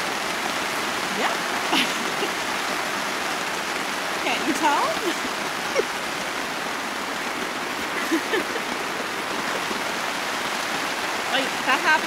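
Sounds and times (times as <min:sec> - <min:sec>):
heavy rain on a tarp: 0:00.0 - 0:12.0.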